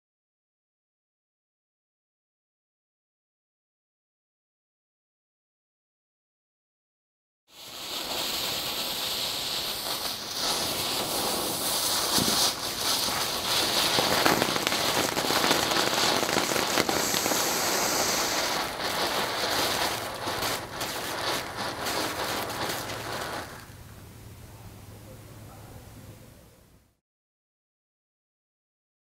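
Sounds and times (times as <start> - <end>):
firework sparks hissing: 7.5 - 24.5
firework crackling: 7.5 - 25.5.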